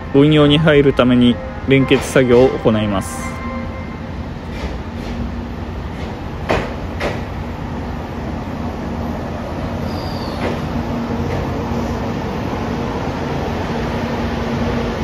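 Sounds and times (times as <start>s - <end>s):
train rumble: 0.0s - 15.0s
sharp clunks: 6.0s - 7.3s
brake squeal: 9.8s - 10.4s.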